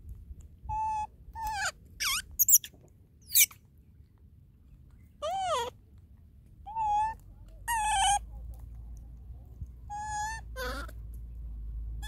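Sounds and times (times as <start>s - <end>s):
baby monkey squealing: 0.7s - 3.6s, 6.7s - 8.2s, 9.9s - 11.0s.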